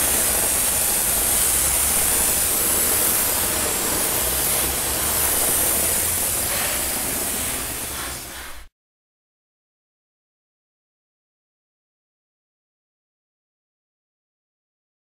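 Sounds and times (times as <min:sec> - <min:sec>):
hose spraying on wood: 0:00.0 - 0:08.7.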